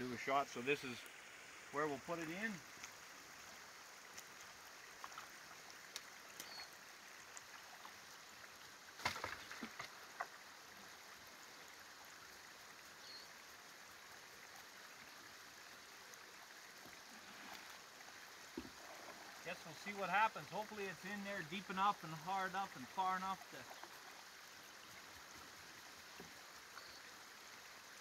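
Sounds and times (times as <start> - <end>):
water splashing: 0.0 - 10.9, 16.1 - 25.5
faint steady hiss: 0.0 - 28.0.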